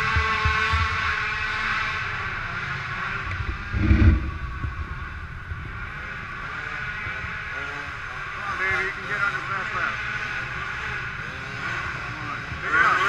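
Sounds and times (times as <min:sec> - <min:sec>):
quad engines buzzing at high revs: 0:00.0 - 0:13.0
low thud: 0:03.3 - 0:05.2.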